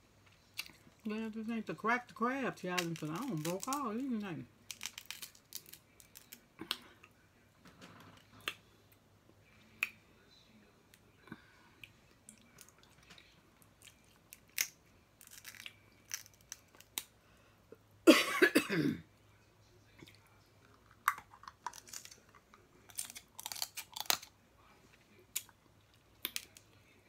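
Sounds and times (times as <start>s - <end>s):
crab shells cracking: 2.7s - 6.9s, 13.8s - 17.2s, 20.7s - 24.3s, 25.3s - 26.7s
close-up chewing: 20.0s - 24.3s.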